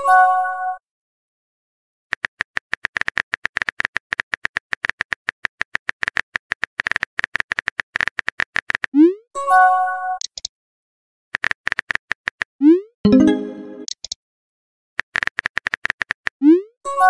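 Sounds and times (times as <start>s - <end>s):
phone keyboard typing clicks: 15.0s - 16.3s.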